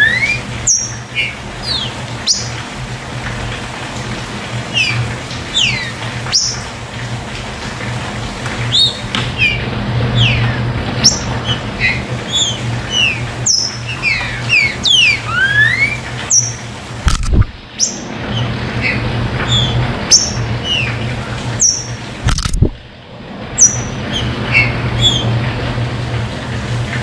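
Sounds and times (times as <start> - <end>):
bird singing whistled notes: 0.0 - 2.5, 11.0 - 16.6
steady low hum: 0.0 - 26.2.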